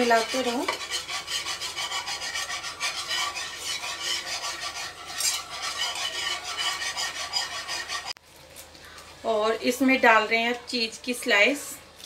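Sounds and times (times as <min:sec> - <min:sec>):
utensil scraping a pan: 0:00.0 - 0:08.2.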